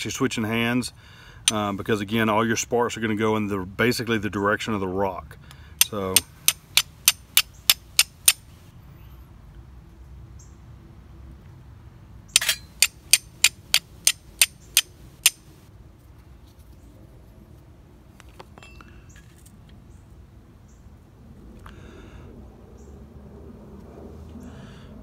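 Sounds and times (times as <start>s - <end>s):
steel striker hitting flint: 5.8s - 8.4s, 12.4s - 15.5s.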